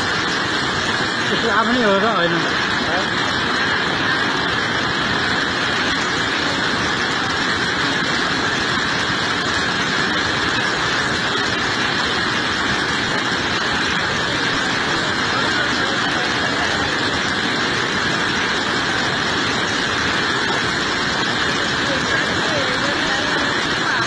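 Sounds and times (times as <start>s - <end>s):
torrent rushing over rocks: 0.0s - 24.0s.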